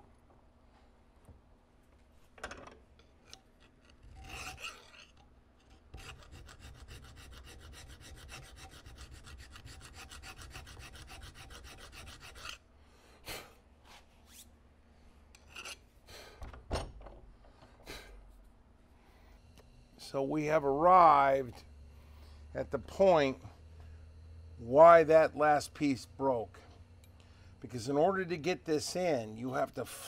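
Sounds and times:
hand file rasping on metal: 3.9s - 5.2s, 5.9s - 12.6s.

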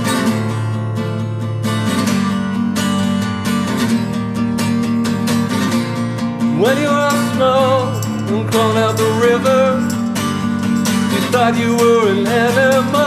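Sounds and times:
strummed acoustic guitar: 0.0s - 13.0s
person singing: 6.5s - 10.2s, 11.0s - 13.0s.

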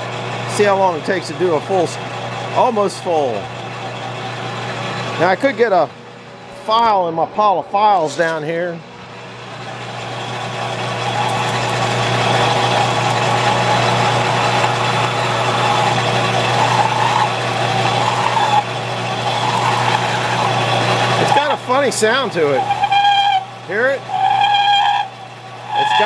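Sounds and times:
lathe tool cutting wood: 0.0s - 5.7s, 9.8s - 26.0s
lathe motor hum: 0.0s - 26.0s.

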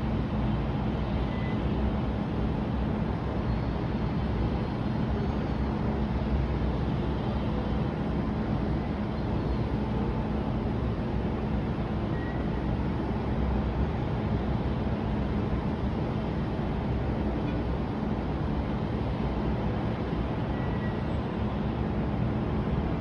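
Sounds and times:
city background rumble: 0.0s - 23.0s
faint steady hum: 0.0s - 23.0s.

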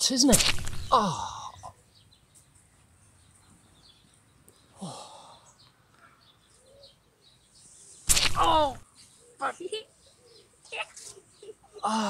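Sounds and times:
faint bird chirps: 0.8s - 12.0s
man sighing: 0.9s - 1.8s, 4.8s - 5.6s, 11.8s - 12.0s.

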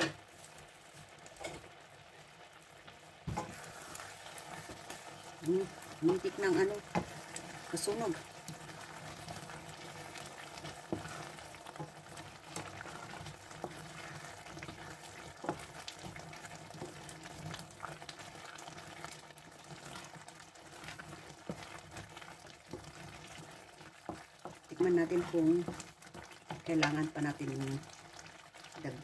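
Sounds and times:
thick sauce simmering in a pan: 0.0s - 29.0s
wooden spoon stirring and scraping: 0.0s - 29.0s.

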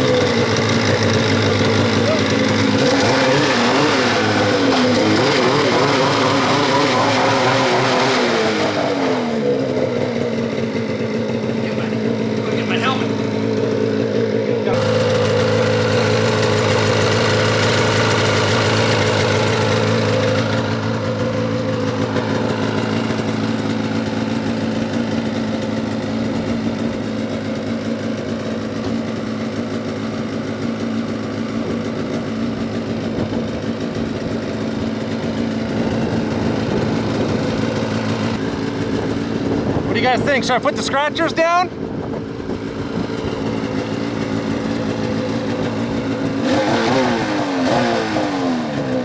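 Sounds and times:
snowmobile engine idling: 0.0s - 49.0s.

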